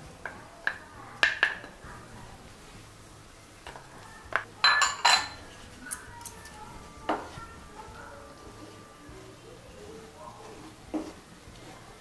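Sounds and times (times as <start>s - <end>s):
kitchen utensils clinking: 3.6s - 7.4s.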